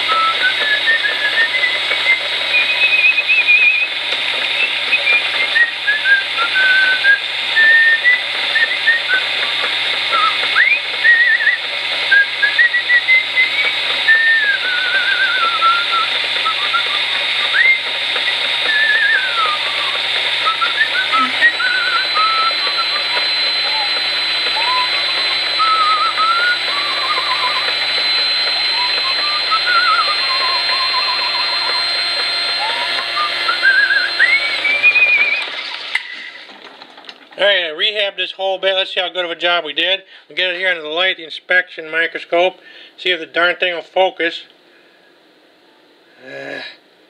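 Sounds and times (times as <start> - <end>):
person whistling: 0.0 - 35.6
rotary tool boring rubber: 0.0 - 36.4.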